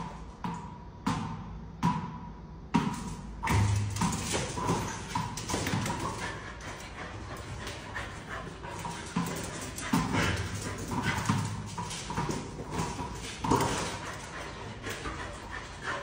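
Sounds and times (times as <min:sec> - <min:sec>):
dog paws tapping on stairs: 0:03.4 - 0:16.0.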